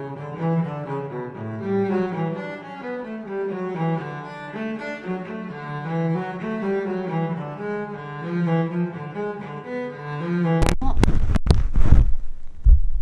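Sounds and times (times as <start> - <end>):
slow bowed-string music with cello: 0.0 - 10.8
camera handling bumps and rubbing: 10.9 - 12.2.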